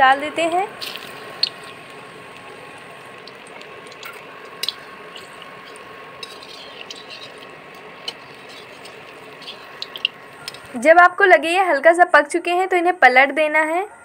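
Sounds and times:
deep-frying sizzle: 0.0s - 11.2s
oil pops and crackles: 0.7s - 10.8s.

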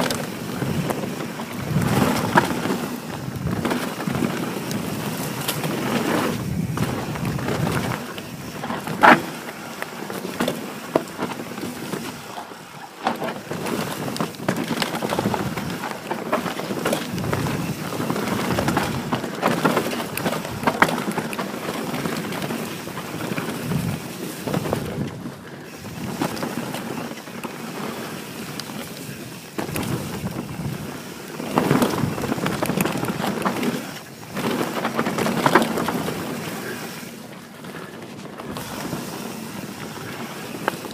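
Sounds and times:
wind noise on microphone: 0.0s - 9.4s, 13.5s - 27.0s, 28.5s - 37.1s
bike rattling and knocking: 0.0s - 40.9s
bike tyres crunching over dirt: 0.0s - 40.9s.

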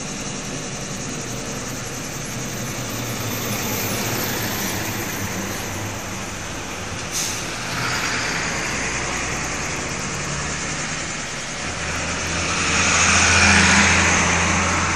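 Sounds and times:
diesel truck engine: 0.0s - 14.9s
sharp air hiss: 7.0s - 8.1s.

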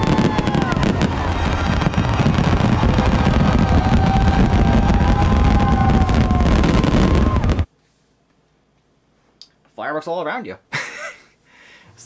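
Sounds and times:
fireworks bursts and booms: 0.0s - 7.7s
fireworks whistling: 0.0s - 7.7s.

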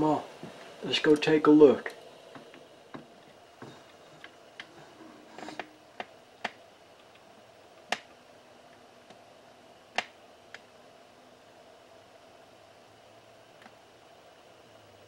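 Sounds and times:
faint clicks and taps: 5.4s - 7.3s, 7.9s - 8.1s.

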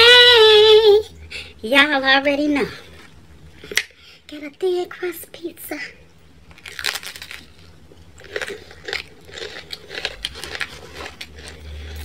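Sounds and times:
chewing crispy crust: 6.4s - 12.0s
crunching bite into pizza: 6.5s - 12.0s.

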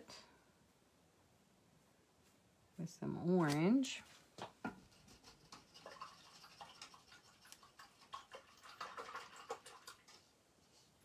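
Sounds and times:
paintbrush scratching and tapping: 4.4s - 8.4s.

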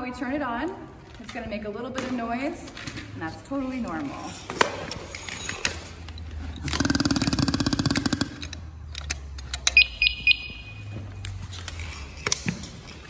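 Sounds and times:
air pack rattling buzz: 6.6s - 8.9s
short high electronic beeps: 9.7s - 11.0s.

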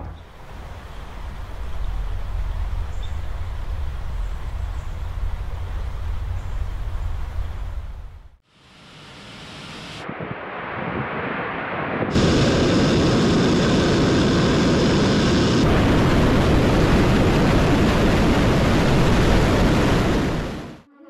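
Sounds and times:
rocket engines roaring: 9.0s - 20.9s.

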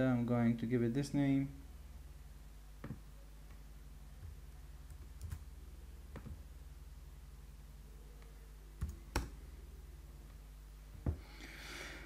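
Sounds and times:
steady low hum: 0.0s - 12.0s
keyboard keystrokes: 4.9s - 5.5s.

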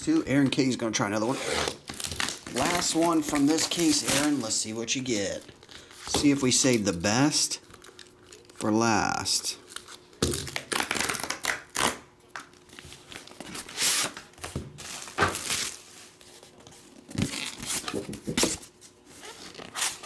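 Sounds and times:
packaging tearing and crinkling: 1.6s - 5.6s, 6.4s - 8.7s, 9.6s - 15.9s.

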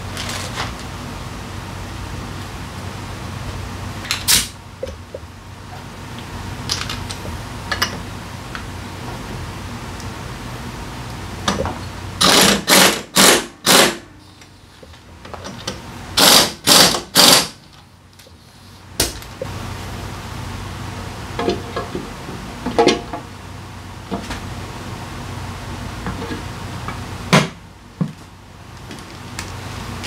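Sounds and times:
pneumatic impact wrench hammering: 12.2s - 14.1s, 16.2s - 17.6s.

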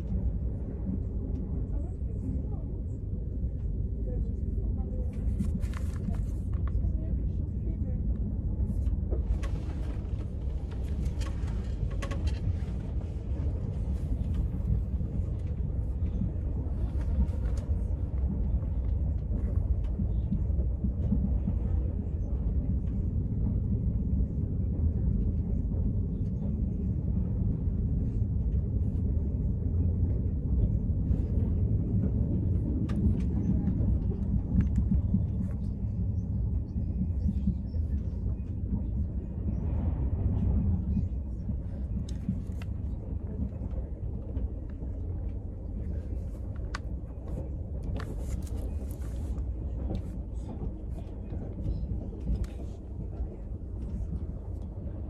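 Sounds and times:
train rumble: 0.0s - 55.0s.

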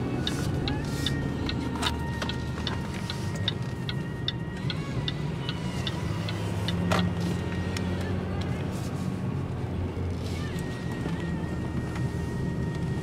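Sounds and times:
turn signal clicking: 0.0s - 8.6s
car engine and tyre hum: 0.0s - 13.0s.

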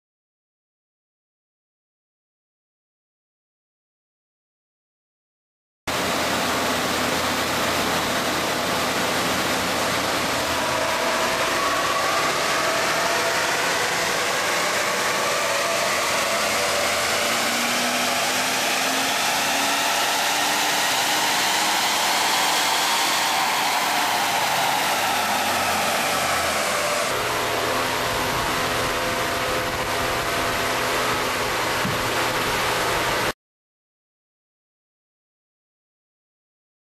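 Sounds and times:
car engine revving on dynamometer: 5.9s - 33.3s
steady rushing noise: 5.9s - 33.3s.

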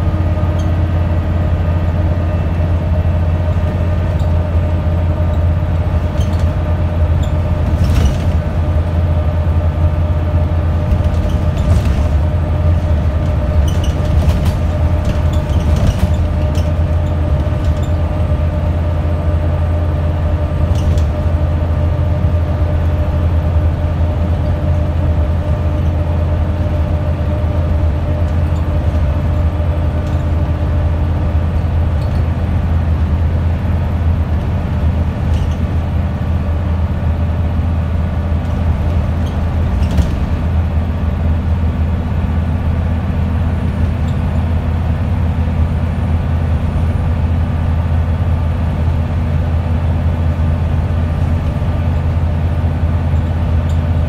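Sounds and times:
bus engine drone: 0.0s - 54.0s
drivetrain whine: 0.0s - 54.0s
road noise: 0.0s - 54.0s.

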